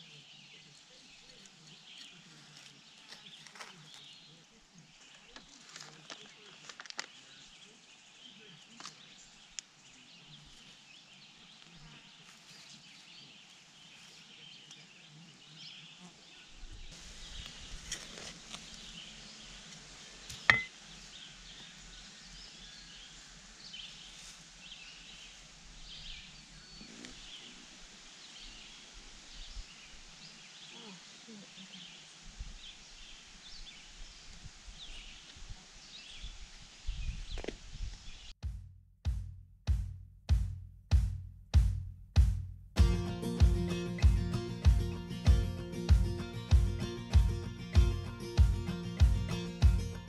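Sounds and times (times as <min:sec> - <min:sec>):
trowel scraping soil: 0:17.4 - 0:19.0.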